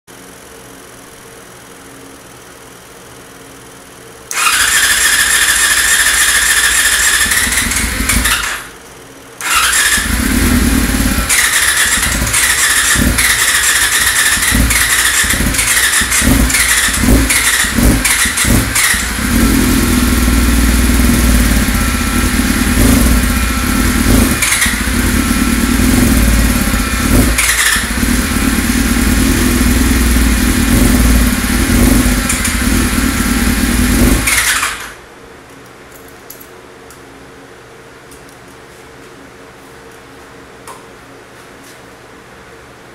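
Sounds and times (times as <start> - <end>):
motorcycle engine revving: 4.3 - 8.7, 9.4 - 35.0
electric starter whining: 4.3 - 8.8, 9.4 - 35.0.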